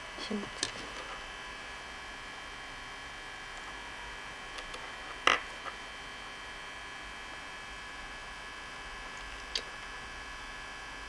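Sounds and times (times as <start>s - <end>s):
electrical hum with high whine: 0.0s - 11.0s.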